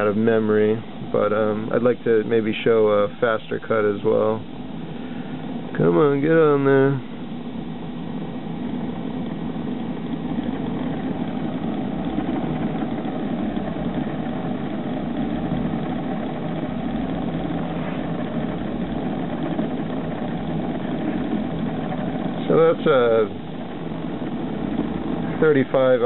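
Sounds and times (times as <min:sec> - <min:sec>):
metal lathe humming: 0:07.0 - 0:26.0.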